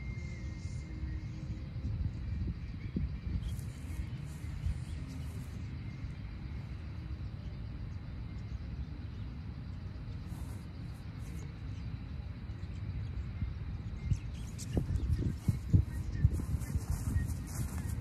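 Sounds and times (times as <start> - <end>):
low outdoor rumble: 0.0 - 18.0
soft rustles: 10.2 - 11.5, 15.3 - 18.0.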